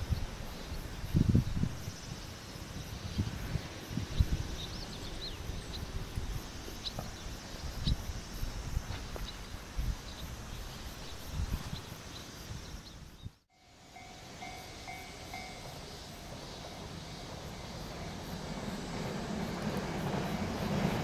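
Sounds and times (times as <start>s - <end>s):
wind buffeting microphone: 0.0s - 13.4s
faint insect drone: 0.0s - 21.0s.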